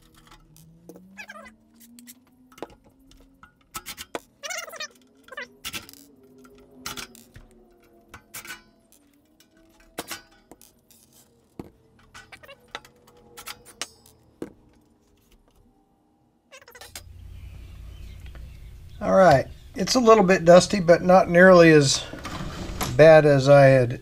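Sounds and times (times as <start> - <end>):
screws and metal clinking: 0.0 - 15.6, 16.6 - 17.2.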